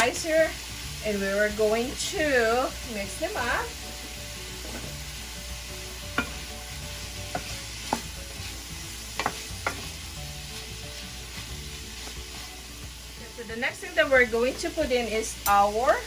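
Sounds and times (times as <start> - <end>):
vegetables sizzling in a pan: 0.0 - 16.0
spoon knocking against pan: 6.1 - 6.5, 7.2 - 8.1, 9.2 - 9.9
wooden spoon stirring: 7.0 - 12.5.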